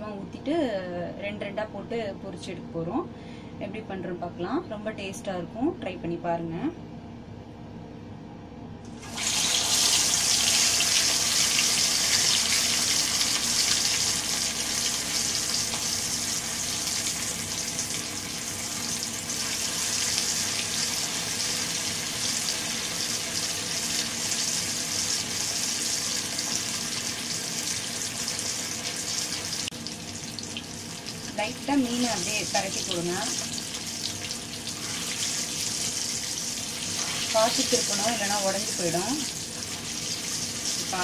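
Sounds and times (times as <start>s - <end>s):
fish frying in hot oil: 9.0s - 41.0s.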